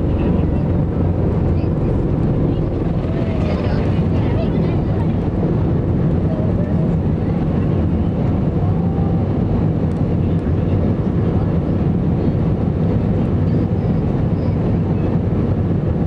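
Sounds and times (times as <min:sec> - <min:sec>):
jet engine roar in cabin: 0:00.0 - 0:16.0.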